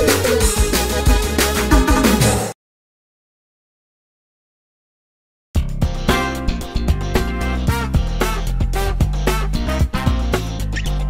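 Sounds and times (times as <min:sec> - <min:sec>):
music with steady beat: 0:00.0 - 0:02.5, 0:05.6 - 0:11.0
sustained bass line: 0:05.6 - 0:11.0.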